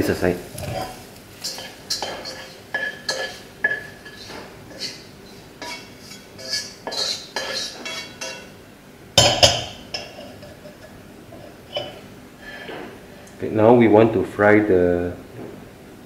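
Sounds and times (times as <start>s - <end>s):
kitchen utensils clinking and scraping: 0.5s - 8.6s, 9.2s - 13.0s
wok knocking on burner grate: 0.6s - 4.5s, 9.2s - 10.2s.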